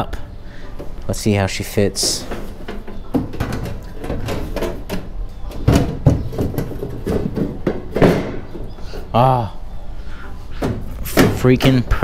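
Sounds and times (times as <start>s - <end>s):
loud knocks: 2.6s - 8.7s.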